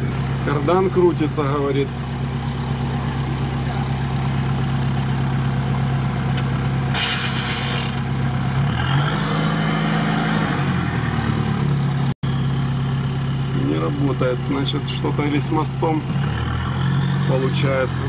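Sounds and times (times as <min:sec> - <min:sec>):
vehicle engine idling and revving: 0:00.0 - 0:18.0
short hiss: 0:06.9 - 0:08.0.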